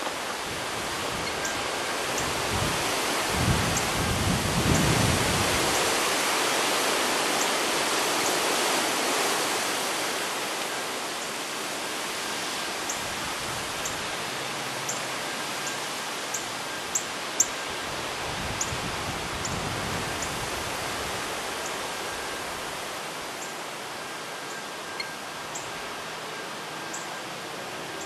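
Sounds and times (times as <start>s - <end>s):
wind hissing: 0.0s - 26.7s
wind buffeting microphone: 0.2s - 6.0s
faint high chirps: 24.4s - 27.2s.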